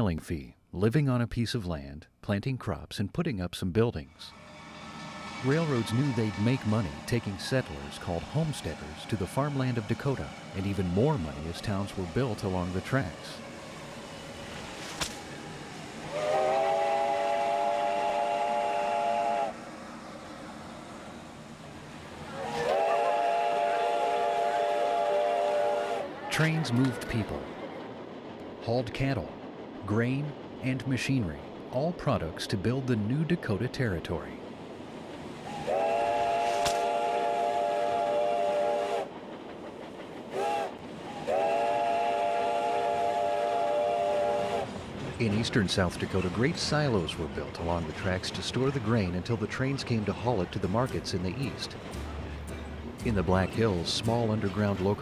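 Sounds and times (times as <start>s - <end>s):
steam locomotive chime whistle: 4.2s - 12.6s, 16.1s - 19.6s, 22.4s - 27.2s, 35.4s - 39.1s, 40.4s - 44.8s.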